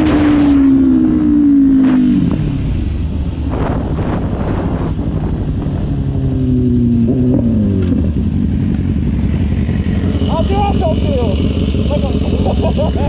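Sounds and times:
wind gusts on microphone: 0.0 - 8.2
motorcycle engine slowing: 0.0 - 13.0
wind rush and road noise: 0.0 - 13.0.

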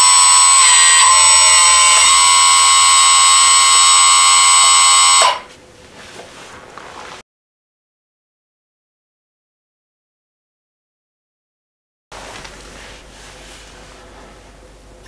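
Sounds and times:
electric hydraulic pump whining: 0.0 - 5.5.

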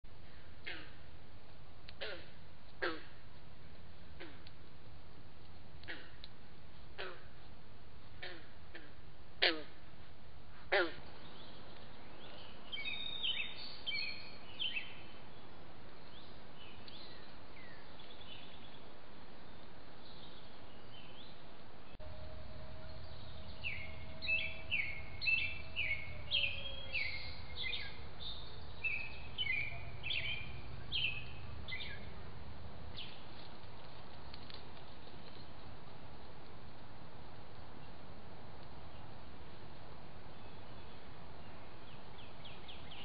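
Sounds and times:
microphone hiss: 0.1 - 43.0
birds chirping: 10.7 - 35.9.

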